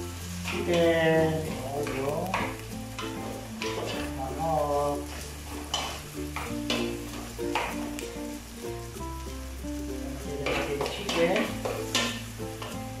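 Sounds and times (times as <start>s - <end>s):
background music sustained notes: 0.0s - 13.0s
food sizzling in butter: 0.0s - 13.0s
metal ladle scraping a pot: 5.1s - 7.7s.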